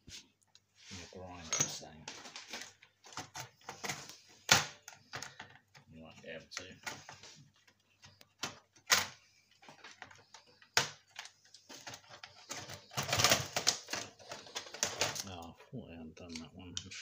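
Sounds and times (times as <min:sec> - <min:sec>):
clicks and rattling of computer parts: 0:01.5 - 0:05.9, 0:06.5 - 0:15.5.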